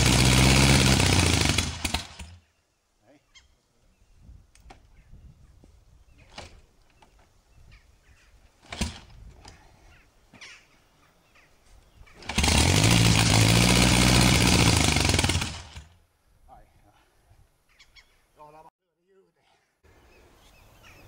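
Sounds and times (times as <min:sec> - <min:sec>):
kick-start clacks: 0:00.0 - 0:02.4, 0:08.6 - 0:09.2, 0:12.2 - 0:16.0
motorcycle engine running: 0:00.0 - 0:02.4, 0:12.2 - 0:16.0.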